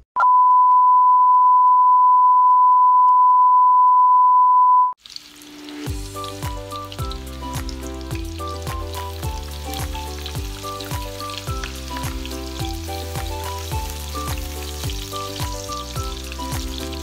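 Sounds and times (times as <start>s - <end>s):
high-pitched test tone beep: 0.2s - 5.0s
garlic sizzling in oil: 5.0s - 17.0s
background music with steady beat: 5.9s - 17.0s.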